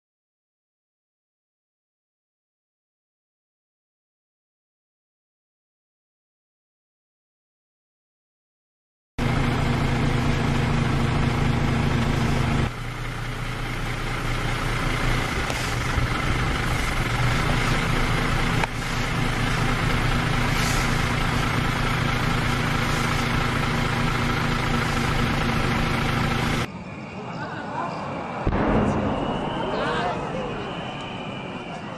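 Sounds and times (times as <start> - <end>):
truck engine idling: 9.2 - 27.2.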